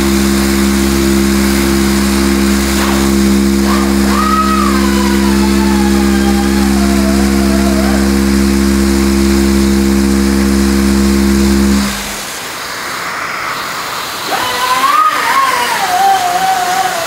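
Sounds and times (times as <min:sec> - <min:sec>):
orbital sander sanding metal: 0:00.0 - 0:12.3.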